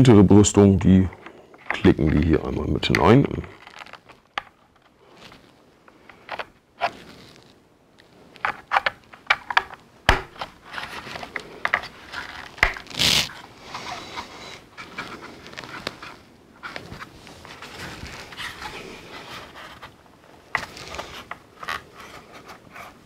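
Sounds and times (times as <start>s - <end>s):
scraping rustle: 0.9s - 9.6s, 10.4s - 23.0s
plastic parts snapping: 8.4s - 13.4s.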